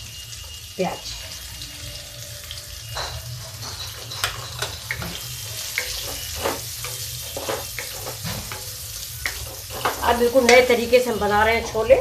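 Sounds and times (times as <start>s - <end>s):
onions sizzling in oil: 0.0s - 12.0s
wooden spatula scraping pan: 3.7s - 11.1s.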